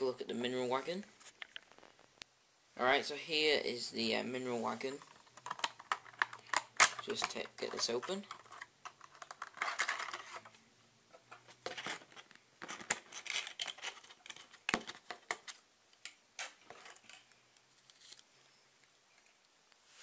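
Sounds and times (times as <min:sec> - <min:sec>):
thin plastic crinkling and clicking: 0:01.2 - 0:02.3, 0:04.9 - 0:10.5, 0:11.1 - 0:19.8.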